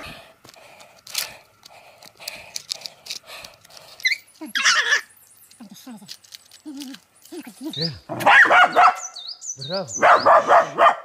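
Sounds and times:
dog whimpering and yelping: 0:04.0 - 0:05.1.

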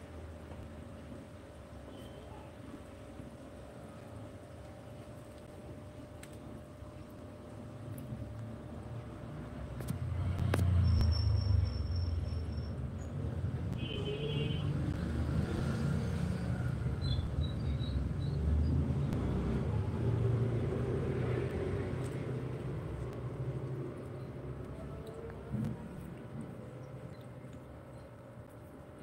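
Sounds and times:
low uneven rumble: 0:19.6 - 0:29.0.

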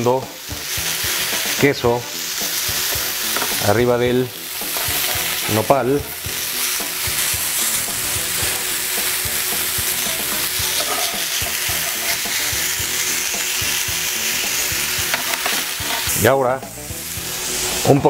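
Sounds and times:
food sizzling on grill pan: 0:00.0 - 0:18.0
utensil knocking and scraping pan: 0:04.6 - 0:06.4, 0:10.1 - 0:12.4, 0:15.0 - 0:16.2.

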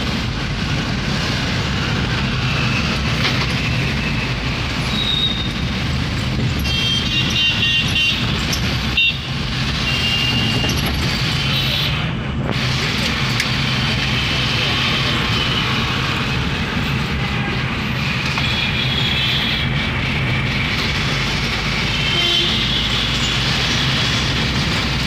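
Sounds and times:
road and engine noise inside car: 0:00.0 - 0:25.0
car horns honking: 0:06.6 - 0:08.3, 0:08.9 - 0:12.0, 0:21.9 - 0:23.4.

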